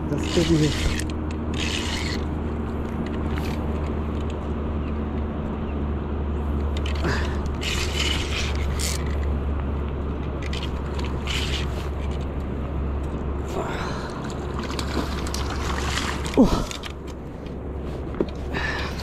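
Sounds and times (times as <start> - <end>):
flowing water: 13.4 - 17.3.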